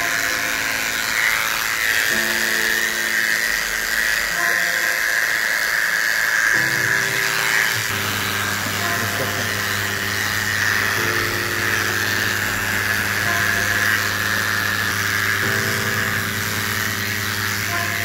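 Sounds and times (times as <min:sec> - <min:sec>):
background music with low notes: 0:00.0 - 0:18.0
electric clippers buzzing: 0:00.0 - 0:18.0.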